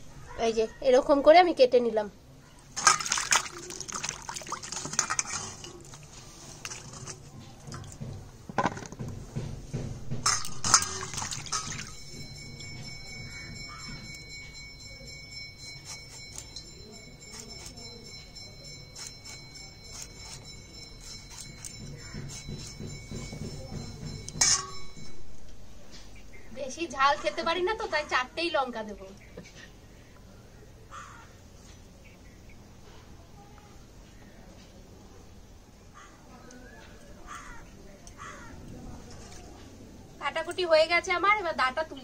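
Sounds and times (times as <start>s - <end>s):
water sloshing and splashing: 2.7s - 8.2s, 10.2s - 13.1s.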